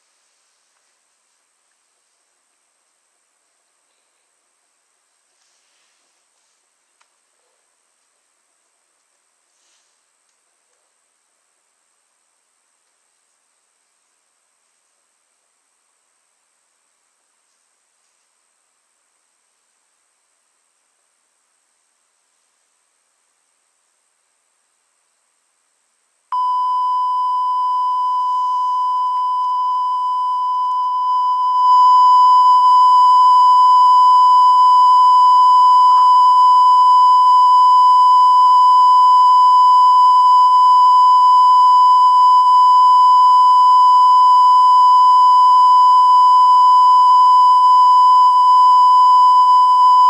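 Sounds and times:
electronic test tone: 0:26.4 - 0:50.0.

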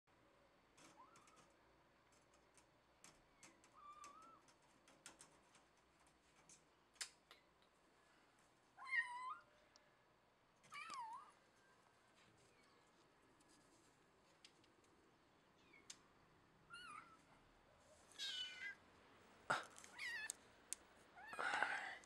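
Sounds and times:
cat meowing: 0:18.1 - 0:18.8, 0:19.9 - 0:20.4.

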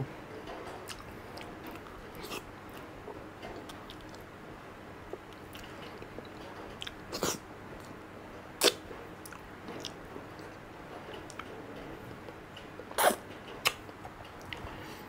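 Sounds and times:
lip smacks: 0:08.6 - 0:10.0.

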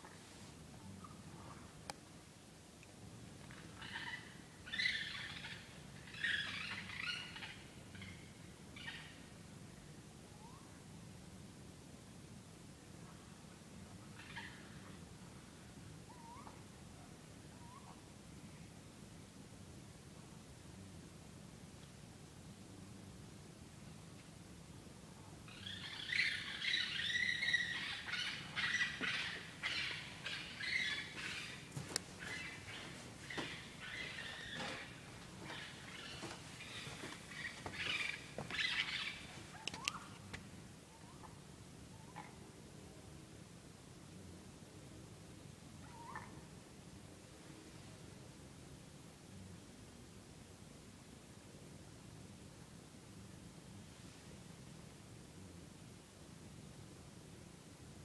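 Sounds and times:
animals calling at night: 0:00.8 - 0:01.8, 0:03.5 - 0:09.4, 0:10.3 - 0:10.8, 0:13.0 - 0:18.1, 0:25.2 - 0:42.6, 0:45.8 - 0:46.7
high-pitched animal calls: 0:25.5 - 0:40.2, 0:45.8 - 0:46.4.

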